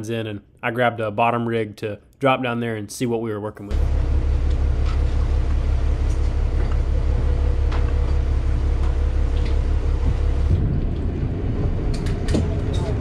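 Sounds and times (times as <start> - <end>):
boat engines droning: 3.7 - 13.0
faint hum: 3.7 - 13.0.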